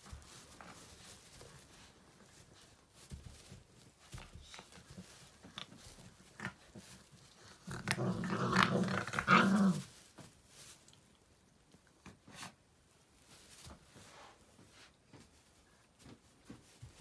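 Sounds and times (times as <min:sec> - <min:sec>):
puppies scuffling in hay: 0:00.0 - 0:17.0
puppy growling: 0:06.2 - 0:09.9.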